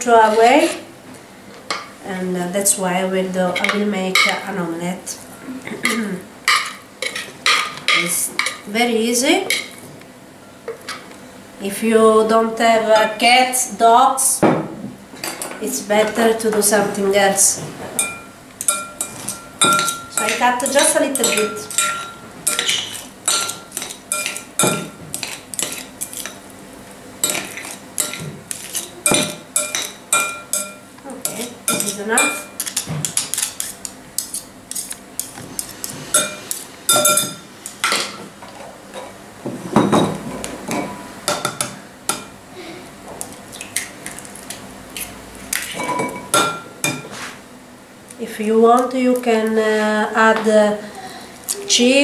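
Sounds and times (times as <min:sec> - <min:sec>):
cutlery clinking in glass bowl: 0:18.0 - 0:26.4, 0:27.2 - 0:35.0, 0:36.2 - 0:38.2.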